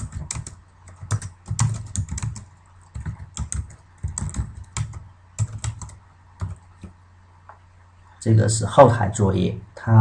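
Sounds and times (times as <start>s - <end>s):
computer keyboard typing: 0.0s - 6.9s.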